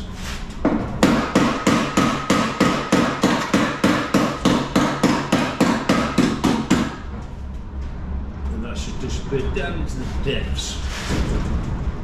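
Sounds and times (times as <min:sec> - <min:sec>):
hammer striking sheet metal: 0:00.7 - 0:07.0.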